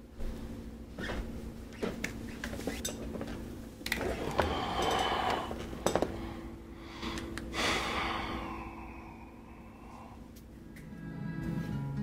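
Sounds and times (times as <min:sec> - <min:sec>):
office chair rustling and clicking: 0:00.3 - 0:06.2
breathy rush: 0:04.1 - 0:10.4.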